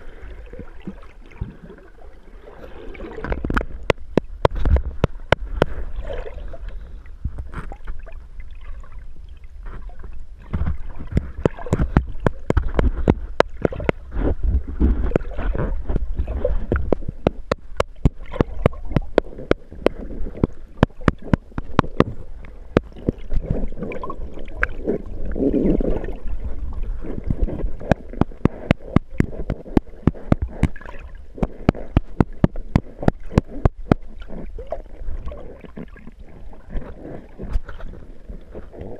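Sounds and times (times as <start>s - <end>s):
water rumbling and sloshing: 0.0s - 38.9s
stones clicking underwater: 3.2s - 5.8s, 10.4s - 38.9s.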